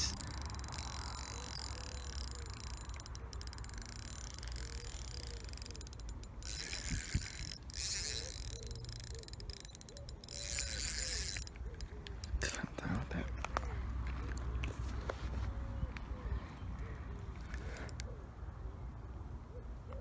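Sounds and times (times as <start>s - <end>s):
fishing reel clicking: 0.0s - 12.6s.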